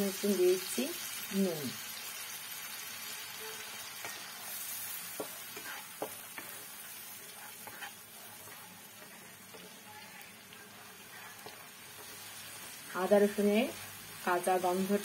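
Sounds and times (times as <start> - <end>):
paste sizzling in butter: 0.1 - 15.0
spatula scraping a pan: 3.6 - 12.8.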